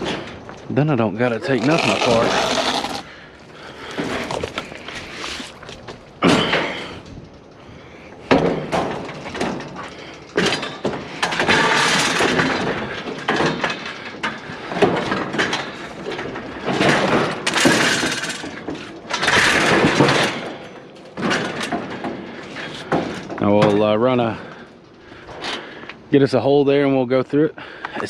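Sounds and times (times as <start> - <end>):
scrap scraping on trailer: 0.0 - 7.0
heavy scrap metal knocking: 8.2 - 24.8.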